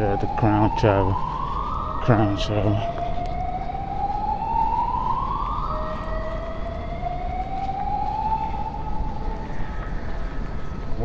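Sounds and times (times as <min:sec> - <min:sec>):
siren wailing: 0:00.0 - 0:11.0.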